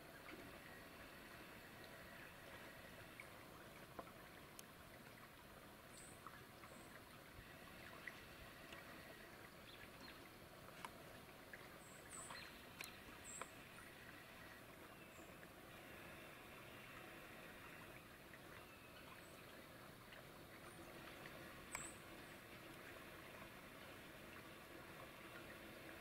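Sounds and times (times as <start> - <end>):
small ticks: 3.9 - 4.7, 7.9 - 9.0, 10.7 - 11.0, 12.2 - 13.6, 21.6 - 22.1.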